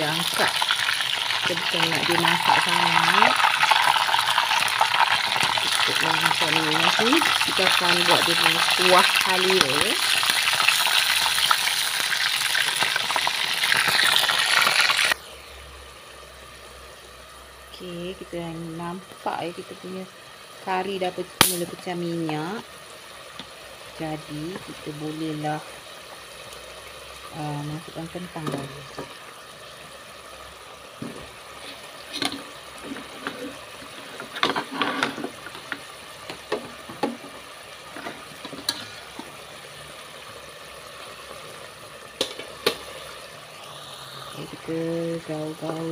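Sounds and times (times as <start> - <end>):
chicken sizzling in hot oil: 0.0 - 45.9.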